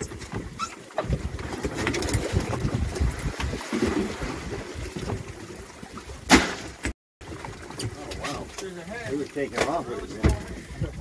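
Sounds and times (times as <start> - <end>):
wind buffeting microphone: 0.0 - 5.4, 9.8 - 11.0
water noise: 0.0 - 11.0.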